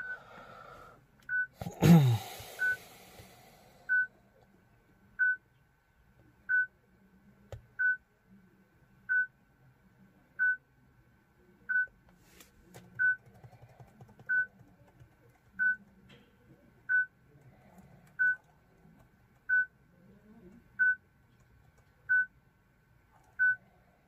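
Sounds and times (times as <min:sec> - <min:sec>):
car radio warning beeps: 0:00.0 - 0:00.2, 0:02.6 - 0:02.8.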